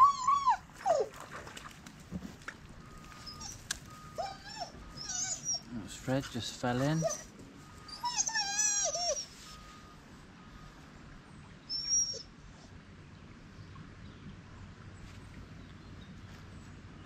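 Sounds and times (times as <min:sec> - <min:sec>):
dog whining: 0:00.0 - 0:01.2, 0:03.1 - 0:05.8, 0:06.8 - 0:09.9, 0:11.7 - 0:12.7.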